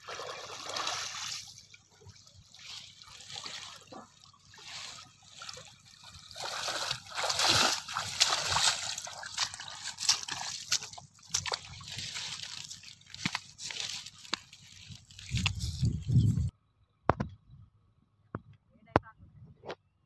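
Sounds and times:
person wading through water: 0.0s - 16.2s
wet steps through plants and mud: 4.6s - 16.5s.

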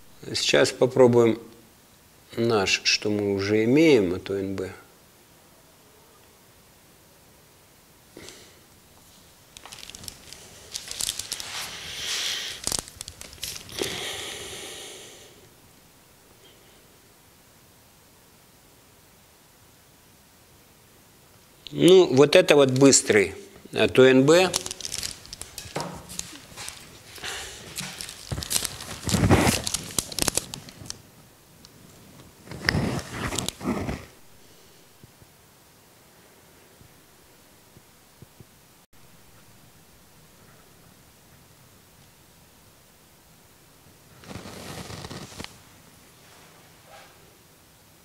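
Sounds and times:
light clicks and rustles: 9.0s - 11.9s, 24.5s - 31.0s
liquid spray hissing: 10.4s - 12.8s.

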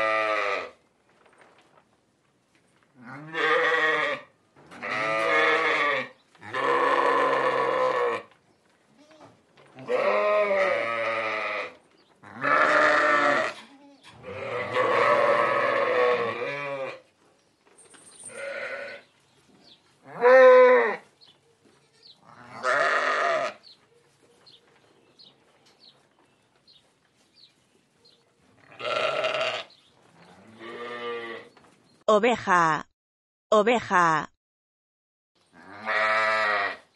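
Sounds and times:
sheep bleating: 3.0s - 8.3s, 9.0s - 17.0s, 18.3s - 19.1s, 20.0s - 21.0s, 21.8s - 23.6s, 28.6s - 29.7s, 30.4s - 31.5s, 35.6s - 36.9s.

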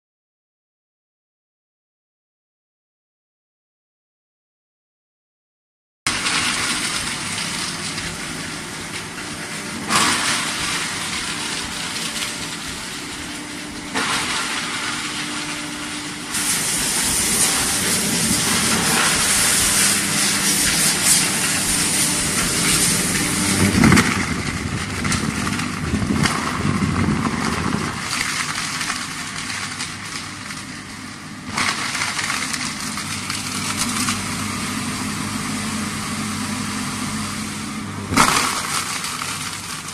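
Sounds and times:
foam shredder running: 6.1s - 39.9s.

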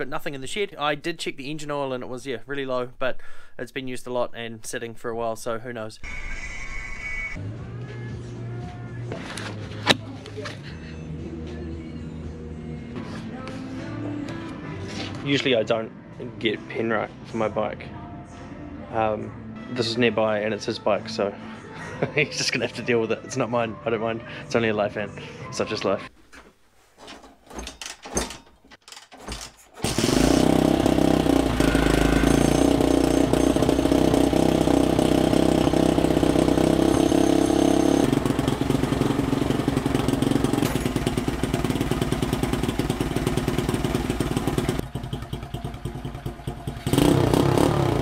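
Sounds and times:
minibike engine running: 29.8s - 48.0s.

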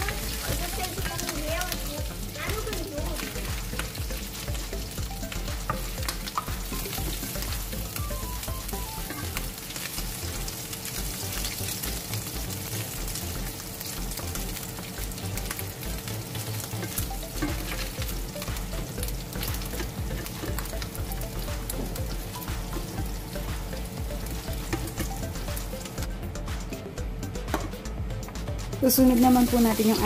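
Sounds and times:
meat sizzling in oil: 0.0s - 26.1s, 28.8s - 30.0s.

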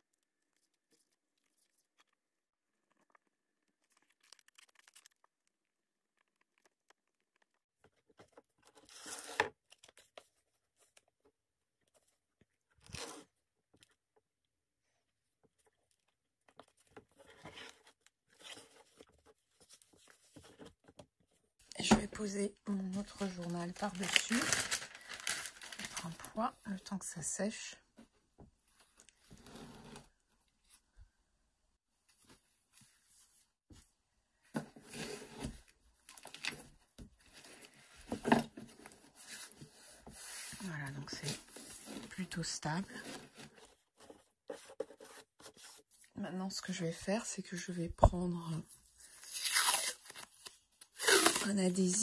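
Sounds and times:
paper rustling: 0.1s - 11.0s, 22.9s - 26.4s
book pages rustling and scraping: 15.5s - 21.5s, 28.7s - 30.8s, 32.0s - 46.8s.

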